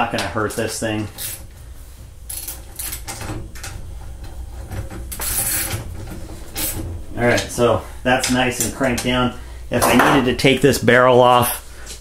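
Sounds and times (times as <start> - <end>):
vise clamp scraping: 2.3 - 6.9.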